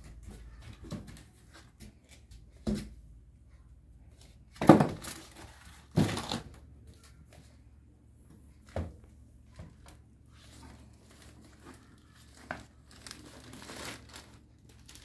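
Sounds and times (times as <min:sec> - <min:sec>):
plastic wrapping rustling: 0:04.1 - 0:07.4, 0:09.7 - 0:15.0.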